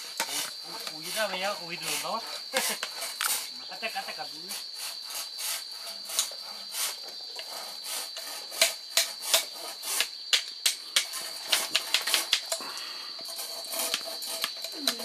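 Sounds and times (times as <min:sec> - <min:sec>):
high insect drone: 0:00.0 - 0:15.0
sharp clicks and knocks: 0:08.6 - 0:12.6.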